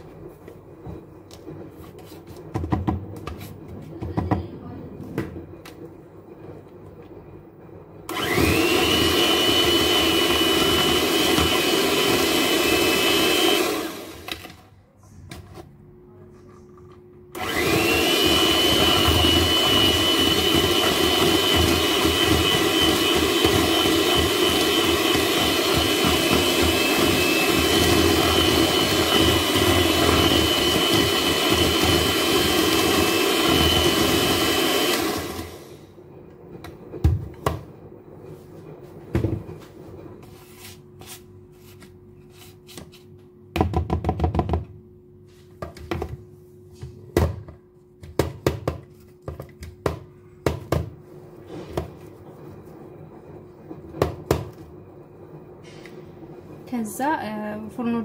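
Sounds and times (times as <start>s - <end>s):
electric hand mixer running: 8.1s - 14.5s, 17.3s - 35.8s.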